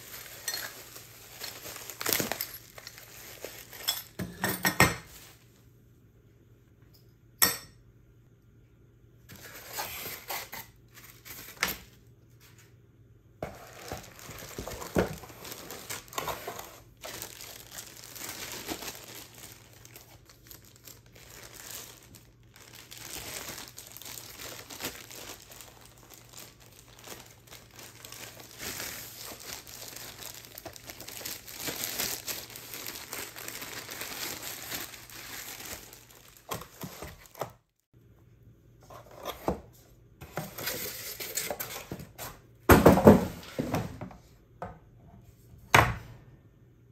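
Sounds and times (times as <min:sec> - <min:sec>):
plastic film crinkling: 0:00.0 - 0:04.2, 0:13.4 - 0:37.8.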